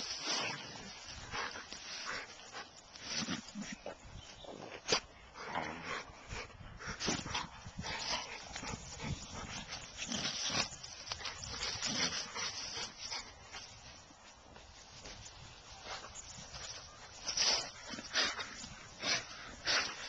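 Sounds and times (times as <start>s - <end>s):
dog sniffing: 15.8s - 20.0s.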